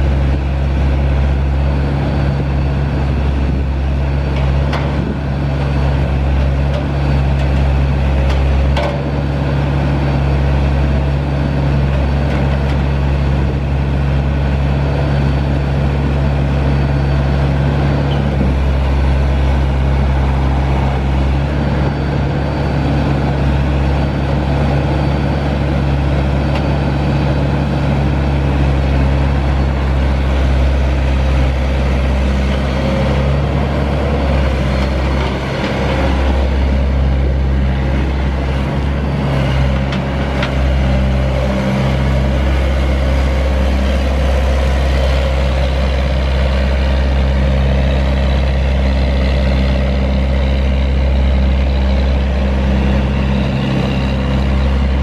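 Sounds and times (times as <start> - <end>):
diesel excavator engine running: 0.0 - 55.0.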